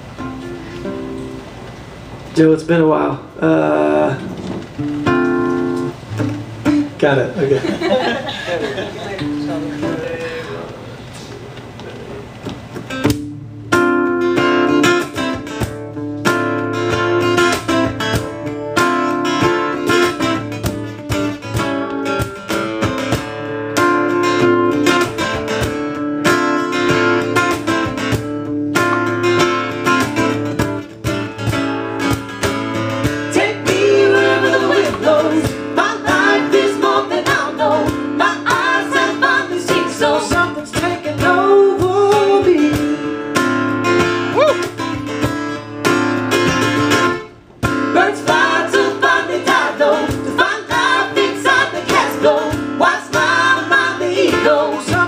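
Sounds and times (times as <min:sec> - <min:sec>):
acoustic guitars strumming: 0:00.0 - 0:02.4, 0:03.1 - 0:55.0
person singing: 0:33.3 - 0:43.2, 0:44.3 - 0:44.7, 0:48.0 - 0:55.0.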